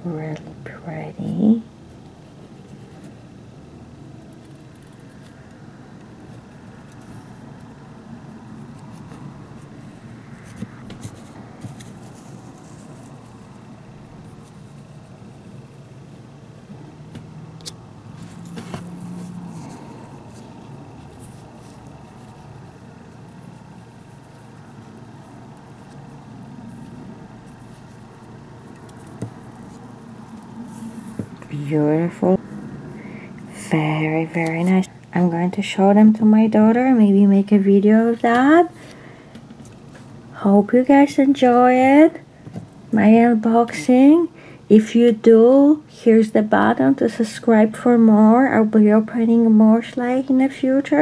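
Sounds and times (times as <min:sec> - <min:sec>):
low background rumble: 0:00.0 - 0:38.8.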